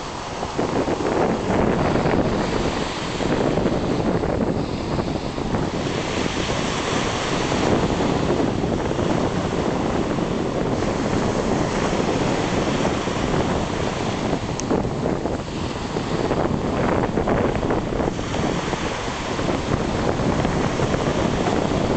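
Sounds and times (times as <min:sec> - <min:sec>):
small waves washing onto sand: 0:00.0 - 0:21.9
wind buffeting the microphone: 0:00.0 - 0:21.9.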